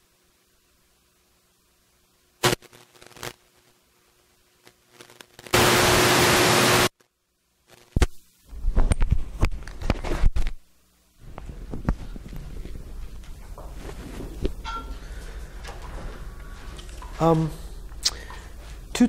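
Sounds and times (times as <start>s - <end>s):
static hiss burst: 2.4s - 3.8s, 4.6s - 6.9s
microphone clicks: 11.2s - 14.7s
rustling handling noise: 11.2s - 19.0s.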